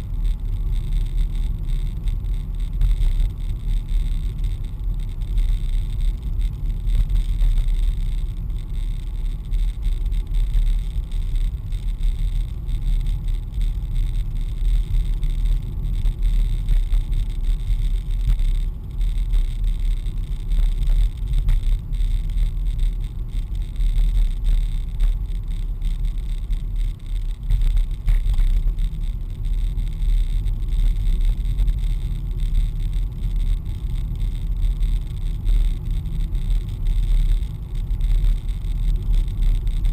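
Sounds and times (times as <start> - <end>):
car engine and tyre rumble: 0.0 - 39.9.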